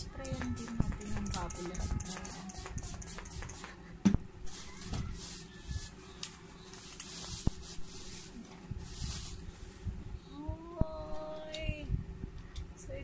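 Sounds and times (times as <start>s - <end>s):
spray bottle hissing: 0.4s - 3.8s
bubble wrap rustling: 4.5s - 9.8s.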